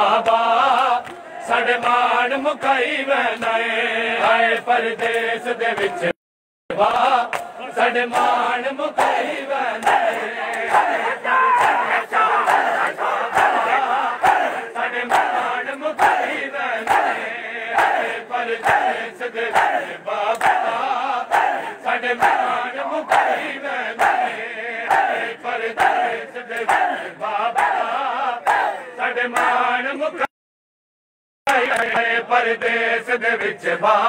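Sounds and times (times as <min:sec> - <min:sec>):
men's voices chanting: 0:00.0 - 0:30.3, 0:31.5 - 0:34.0
hands slapping chests: 0:11.6 - 0:13.6, 0:18.6 - 0:22.5.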